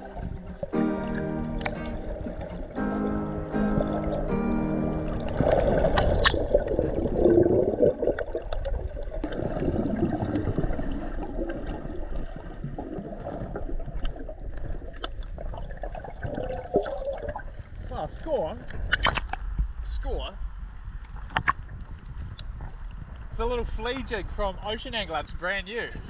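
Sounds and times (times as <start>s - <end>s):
water bubbling underwater: 0.0s - 18.0s.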